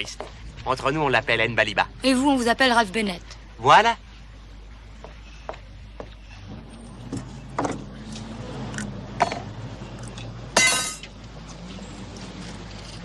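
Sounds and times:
low steady hum: 0.0 - 13.0
ringing metallic clink: 10.6 - 11.1.

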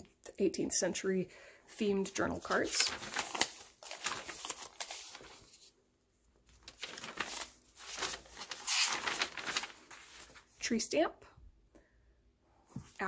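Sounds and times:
paper pages rustling: 2.2 - 5.8, 6.4 - 10.6.

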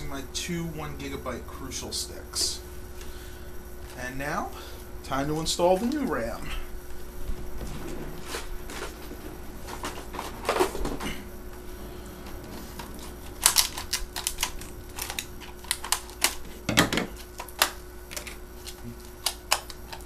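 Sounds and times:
plastic package rustling: 12.7 - 16.6.

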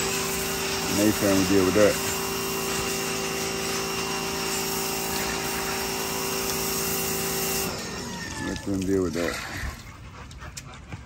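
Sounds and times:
small motor humming: 0.0 - 8.7.

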